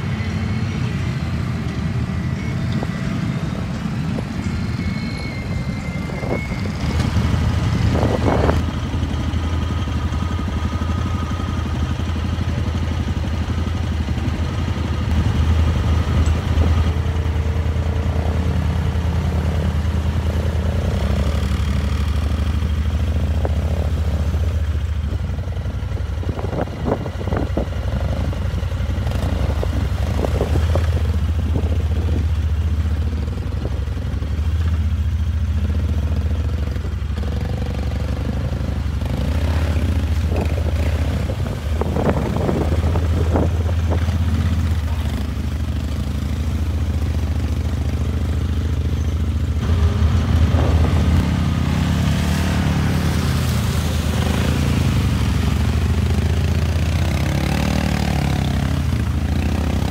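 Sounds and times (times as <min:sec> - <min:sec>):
quad bike engine under load: 0:00.0 - 0:59.9.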